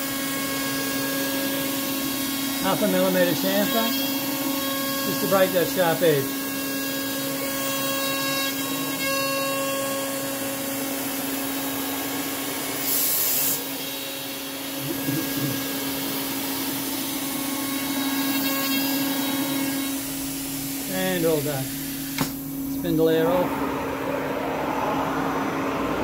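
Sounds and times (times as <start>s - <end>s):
router spindle cutting plywood: 0.0s - 23.8s
spindle air hiss: 12.7s - 13.7s.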